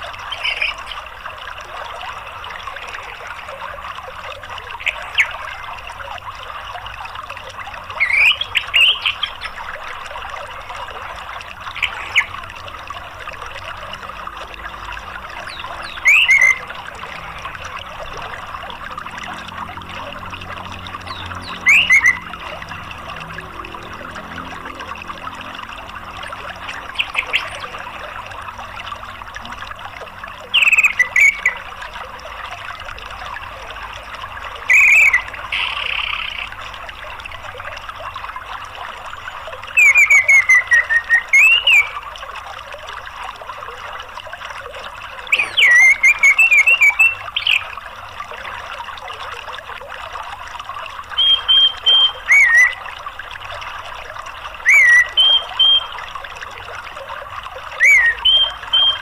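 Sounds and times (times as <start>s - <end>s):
stream water flowing: 0.0s - 59.0s
thrush chirping and whistling: 15.5s - 16.7s, 21.1s - 22.3s, 39.8s - 42.0s, 45.3s - 47.7s, 51.2s - 52.8s, 54.6s - 56.0s, 57.8s - 59.0s.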